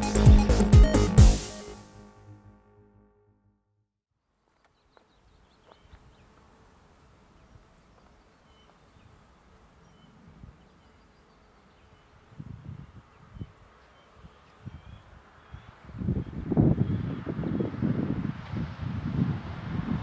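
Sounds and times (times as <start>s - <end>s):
distant bird chirps: 7.3s - 12.3s
wind rumble on microphone: 12.2s - 20.0s.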